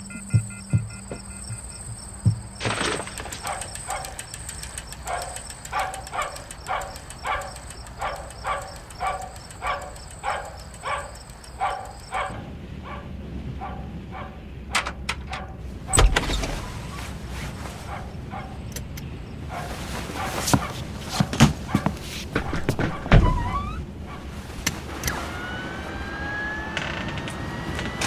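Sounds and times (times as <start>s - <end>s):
insects trilling: 0.0s - 12.3s, 25.1s - 28.0s
low pulsing insect call: 0.0s - 12.5s, 25.1s - 28.0s.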